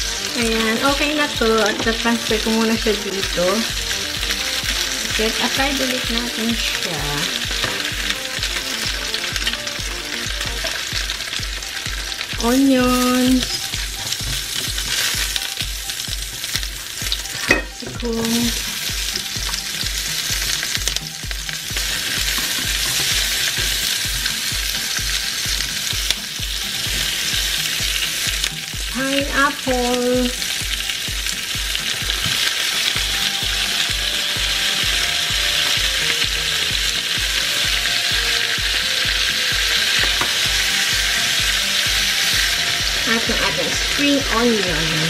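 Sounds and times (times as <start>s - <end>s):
vegetables sizzling in hot oil: 0.0s - 45.0s
spatula stirring in pan: 18.2s - 28.5s.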